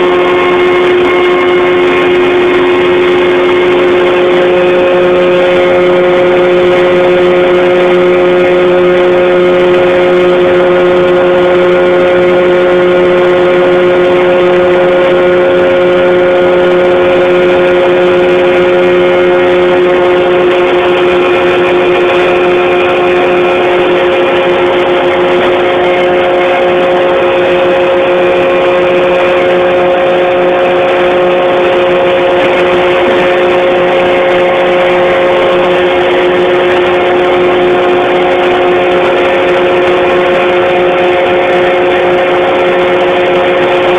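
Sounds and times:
loud steady machine drone: 0.0 - 43.9.

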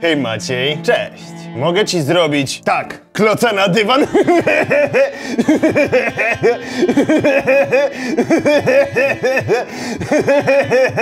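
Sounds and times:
woman laughing hard: 4.0 - 11.0.

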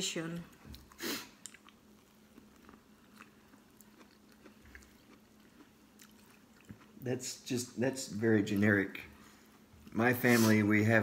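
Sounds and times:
faint chewing: 0.4 - 7.4.

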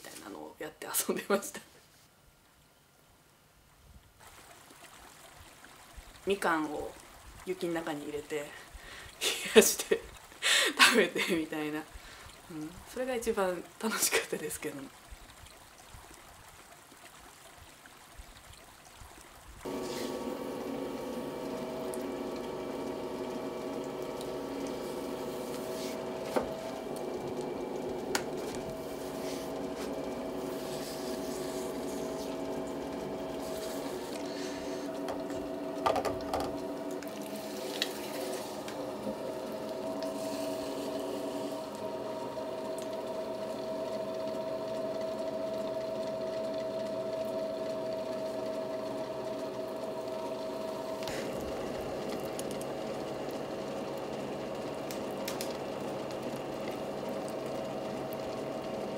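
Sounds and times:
potter's wheel motor whirring: 19.6 - 58.9.

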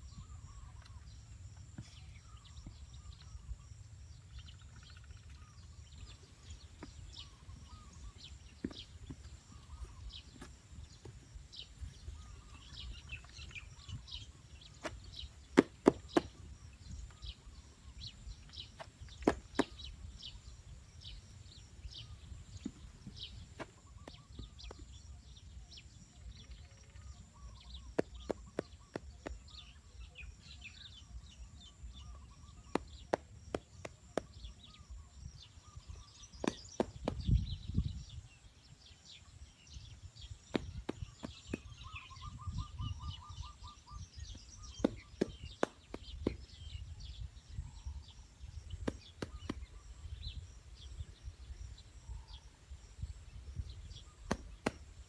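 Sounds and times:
small birds chirping: 0.0 - 55.0
taps and knocks of handwork: 48.8 - 49.7, 54.3 - 54.8.

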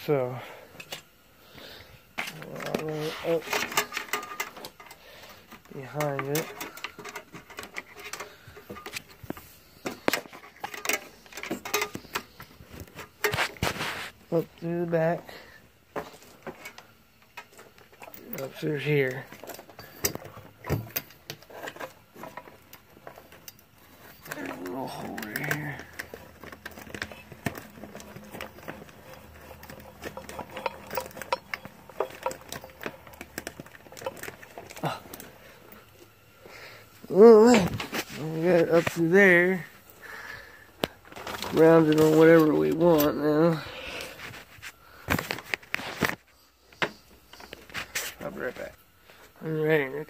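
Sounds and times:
steel chain clinking and rattling: 2.3 - 13.6, 14.6 - 40.2.

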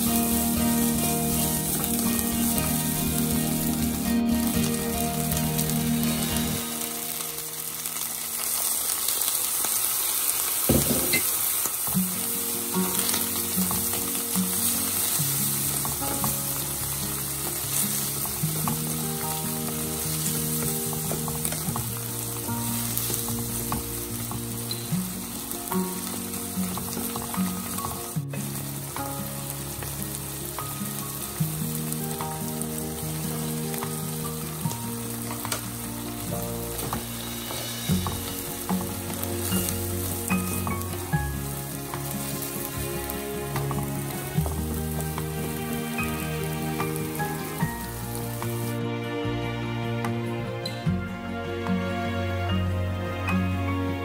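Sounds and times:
soft background music: 0.0 - 9.0, 10.1 - 54.0
vegetables sizzling in a wok: 0.0 - 49.2
wooden spatula scraping a wok: 32.6 - 48.8.

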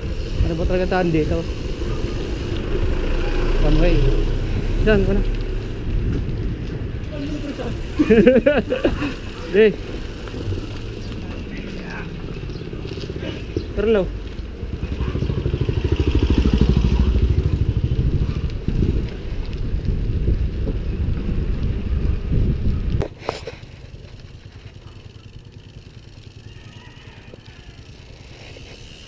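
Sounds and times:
bicycle freewheel ticking: 0.0 - 6.0, 7.1 - 13.1, 23.8 - 29.0
wind and riding rumble: 0.0 - 29.0.

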